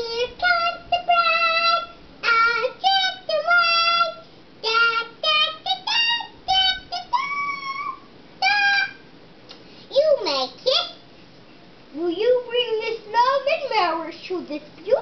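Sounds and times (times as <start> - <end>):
child singing: 0.0 - 9.1.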